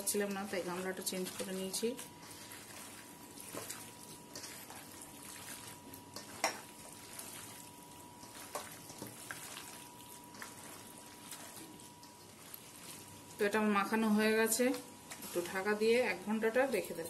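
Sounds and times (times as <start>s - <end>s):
hands squelching in marinade: 7.0s - 13.2s.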